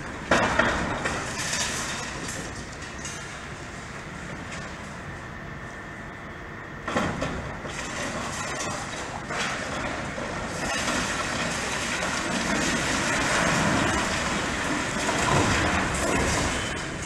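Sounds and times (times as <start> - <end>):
concrete crunching and falling: 0.0 - 3.5, 6.9 - 17.0
excavator machine noise: 0.0 - 17.0.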